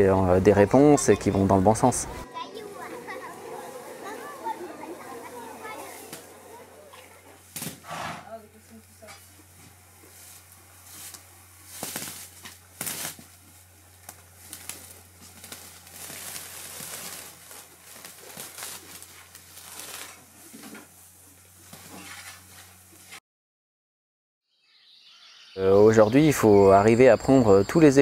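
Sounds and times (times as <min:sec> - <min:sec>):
hay rustling and crunching: 0:02.5 - 0:23.2.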